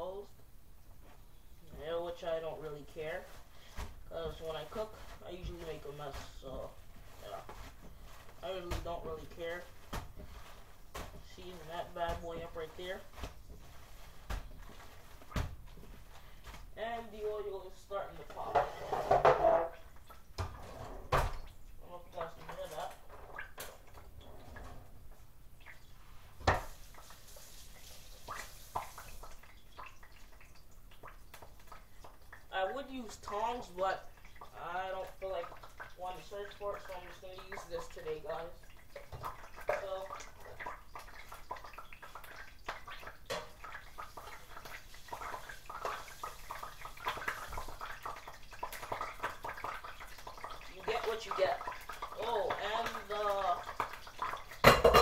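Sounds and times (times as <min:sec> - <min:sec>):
hot oil popping: 0:25.6 - 0:55.0.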